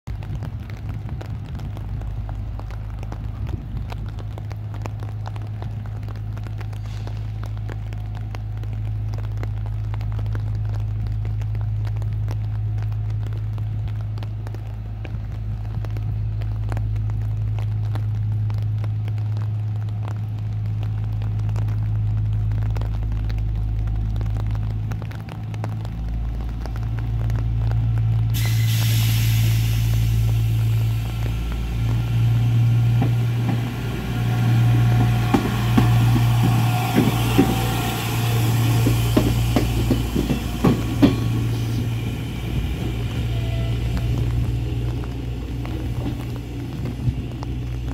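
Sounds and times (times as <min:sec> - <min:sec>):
diesel engine drone: 0:00.1 - 0:47.9
train wheels clicking on rails: 0:25.0 - 0:47.9.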